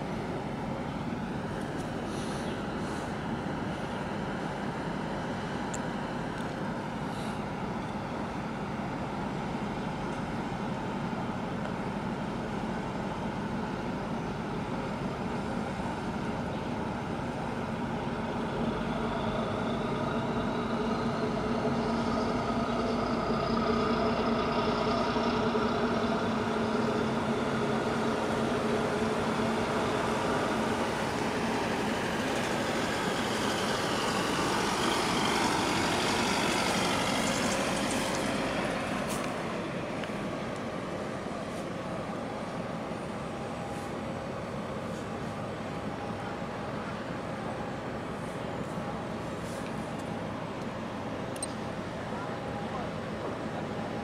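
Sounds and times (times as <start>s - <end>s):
ship diesel engines droning: 0.0s - 54.0s.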